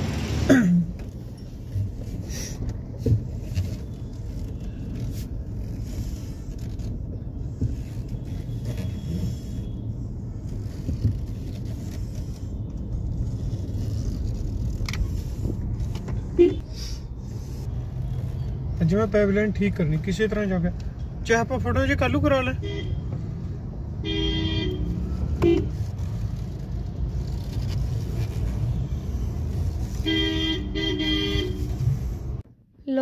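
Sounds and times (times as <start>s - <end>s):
car engine rumble: 0.0s - 33.0s
road noise: 0.0s - 33.0s.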